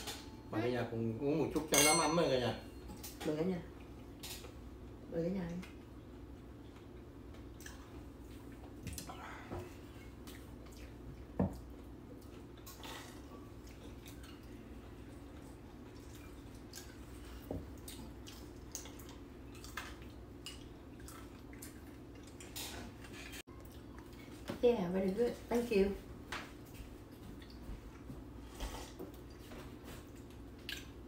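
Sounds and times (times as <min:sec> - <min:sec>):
tableware clicks and taps: 0:01.7 - 0:03.1.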